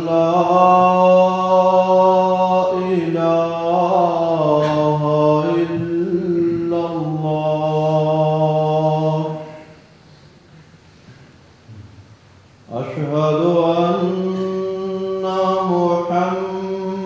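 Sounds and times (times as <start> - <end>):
man chanting call to prayer: 0.0 - 9.8, 12.7 - 17.0.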